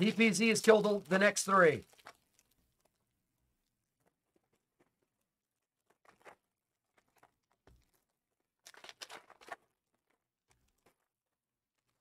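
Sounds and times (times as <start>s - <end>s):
foil wrappers crinkling: 4.0s - 12.0s.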